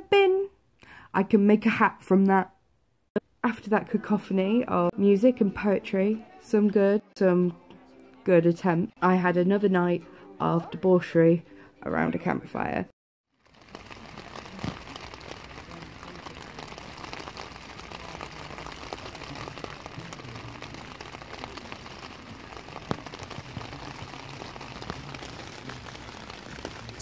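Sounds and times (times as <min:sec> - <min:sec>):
rain falling on a tent: 0:13.3 - 0:27.0.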